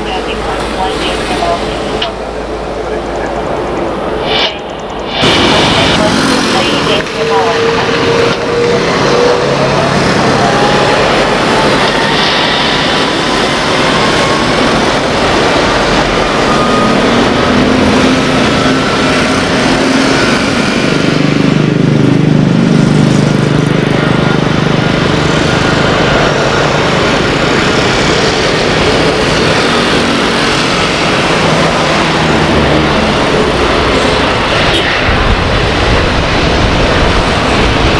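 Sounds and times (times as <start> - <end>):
jet engines roaring at take-off: 0.0 - 37.9.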